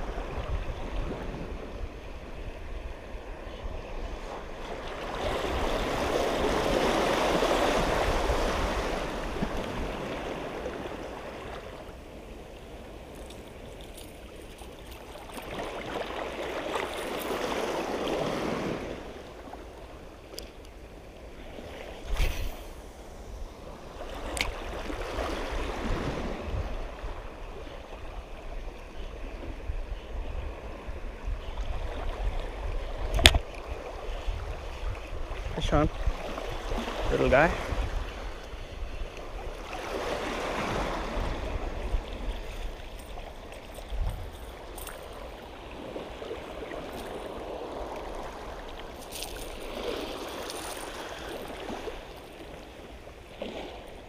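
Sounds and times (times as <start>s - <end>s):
wind rumbling on microphone: 0.0s - 54.0s
waves washing over rocks: 35.4s - 38.5s, 39.2s - 54.0s.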